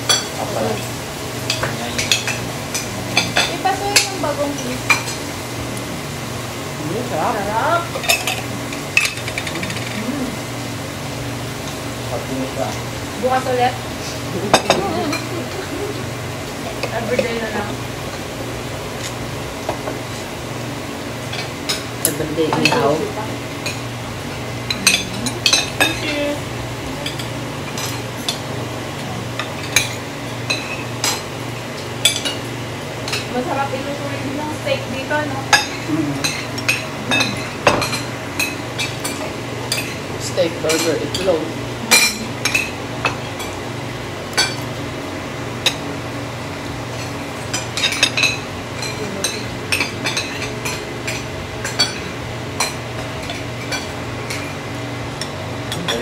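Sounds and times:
cutlery clinking against plates: 0.0s - 4.2s, 7.9s - 10.0s, 14.4s - 15.4s, 21.3s - 23.0s, 24.6s - 26.3s, 27.0s - 28.5s, 29.4s - 31.3s, 35.5s - 43.6s, 44.3s - 44.7s, 46.9s - 54.6s, 55.2s - 56.0s
steady low hum: 0.0s - 56.0s
cutlery clinking on plates: 21.3s - 23.0s, 35.5s - 40.0s, 40.6s - 41.3s, 47.0s - 54.5s.

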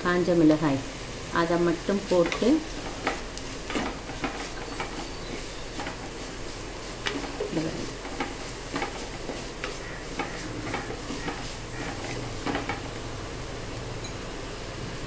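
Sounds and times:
wooden spatula scraping clay pot: 2.1s - 12.8s.

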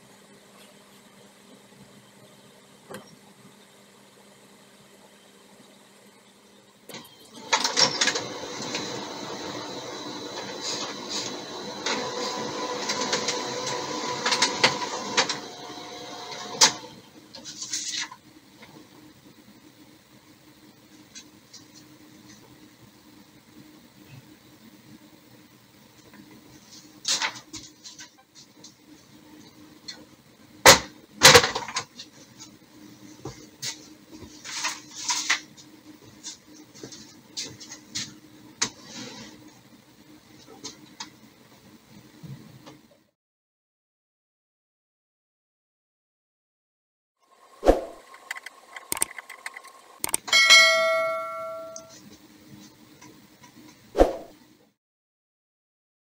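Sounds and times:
printer motors whirring: 6.9s - 17.4s
printer clicks and clacks: 48.2s - 50.4s.

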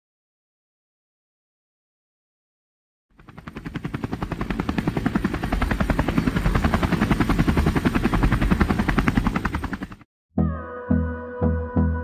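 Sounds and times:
helicopter rotor chopping: 3.1s - 10.1s.

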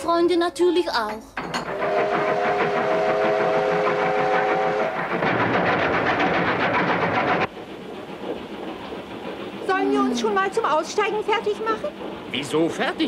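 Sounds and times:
steam train chugging: 1.6s - 13.0s
steam whistle: 1.7s - 5.3s
train rumble from inside carriage: 1.7s - 13.0s.

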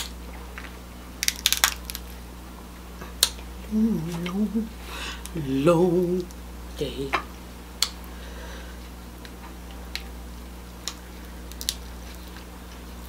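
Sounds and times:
crab shell cracking: 0.0s - 2.2s, 10.7s - 13.0s.

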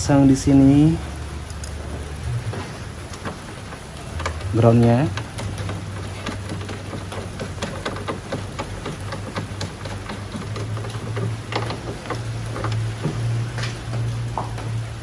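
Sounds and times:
small metal clicks and ticks: 3.1s - 14.8s.

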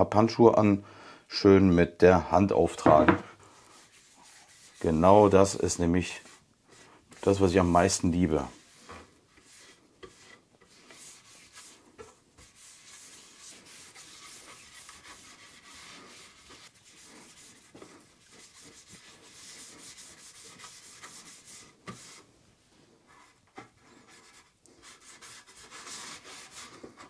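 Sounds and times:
light knock on wood: 2.8s - 3.2s
gloves swishing on wood: 2.9s - 27.0s.

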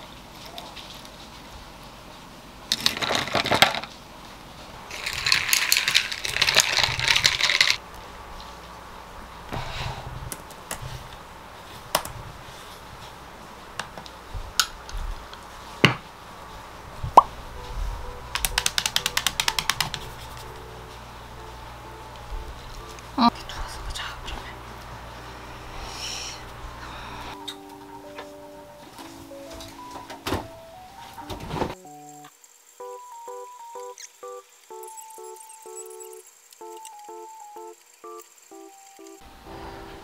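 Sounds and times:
laptop keyboard typing: 18.2s - 20.7s, 33.8s - 39.2s.

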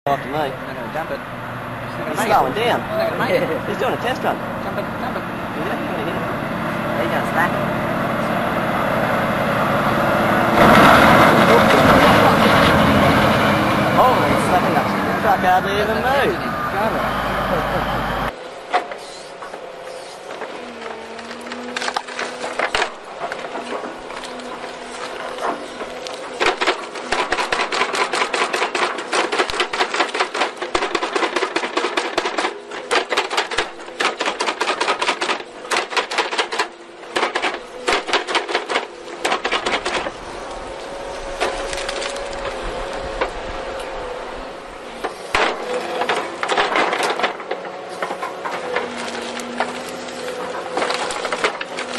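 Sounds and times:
excavator engine hum: 0.1s - 51.9s
wood cracking and splintering: 9.8s - 16.2s, 19.5s - 51.9s.

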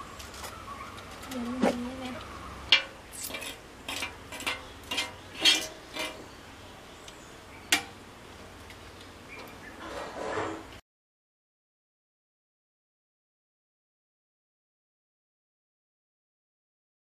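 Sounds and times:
steel bowls and cups clinking: 2.7s - 6.2s.

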